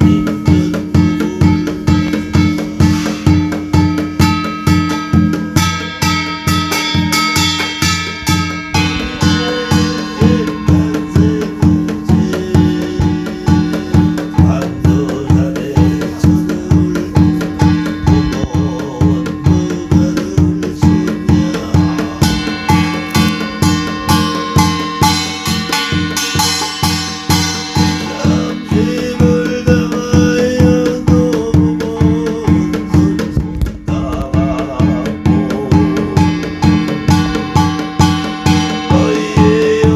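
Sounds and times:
barrel drum beaten steadily: 0.0 - 39.9
metal gong strokes ringing: 0.0 - 39.9
steady held reed tone: 0.0 - 39.9.

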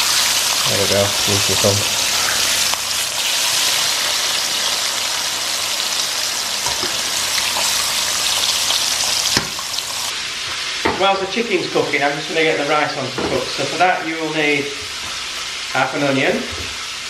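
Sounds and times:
chicken sizzling in hot oil: 0.0 - 17.0.

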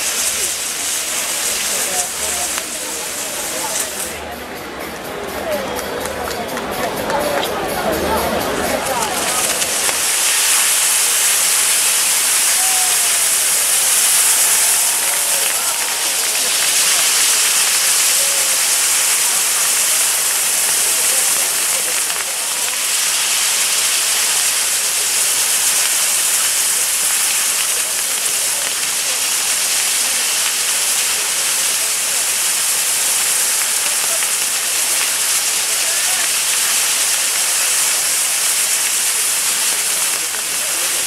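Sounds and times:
firework wheels hissing: 0.0 - 41.0.

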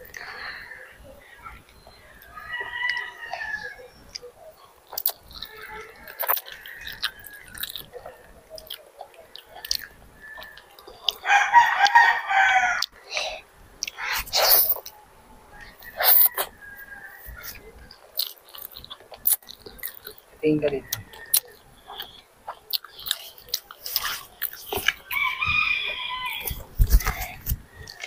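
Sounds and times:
rooster crowing: 1.8 - 4.1, 5.5 - 8.7, 9.6 - 13.1, 15.0 - 17.9, 20.5 - 22.0, 25.0 - 28.0
chewing and slurping noodles: 4.6 - 11.2, 15.6 - 25.3.

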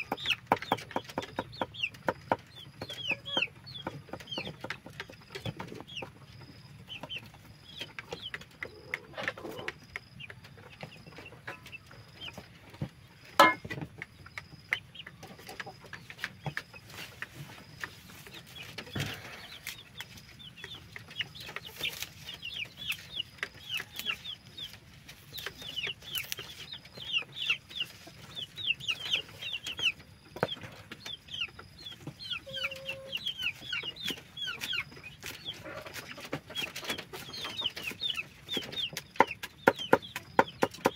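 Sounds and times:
chickens clucking: 0.0 - 40.9
chicks peeping: 0.0 - 40.9
chopping on wooden board: 39.3 - 40.9.

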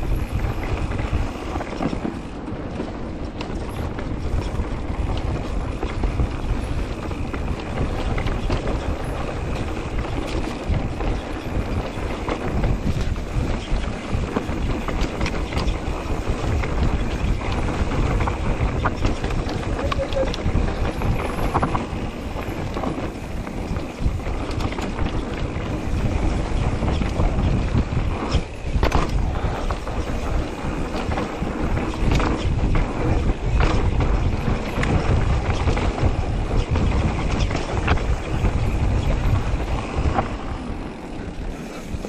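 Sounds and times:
bike knocking and rattling: 0.0 - 42.0
tyres on dirt: 0.0 - 42.0
wind rumble on microphone: 0.0 - 42.0.

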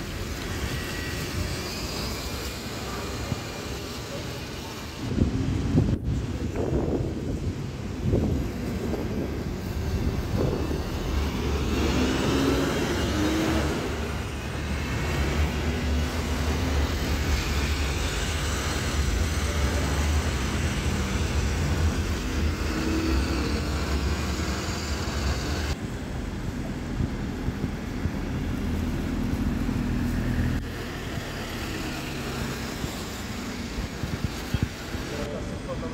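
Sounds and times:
bus engines rumbling: 0.0 - 35.9
traffic noise: 0.0 - 35.9.

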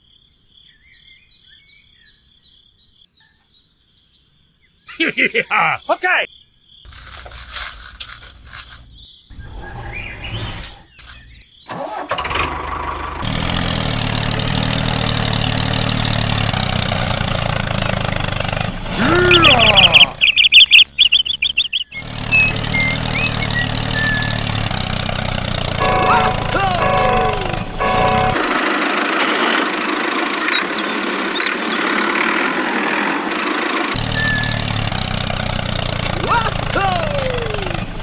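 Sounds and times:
tractor diesel engine running: 6.9 - 9.0, 11.1 - 38.0.

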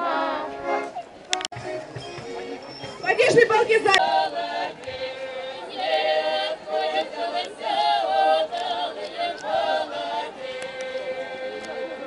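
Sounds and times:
group singing a cappella: 3.7 - 12.0.

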